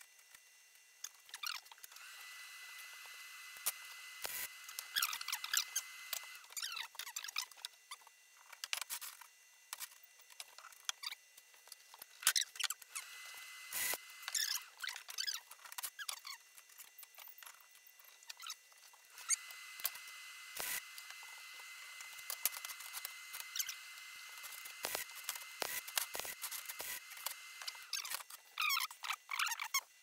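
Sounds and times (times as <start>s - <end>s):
welding arc hissing and crackling: 18.3s - 29.0s.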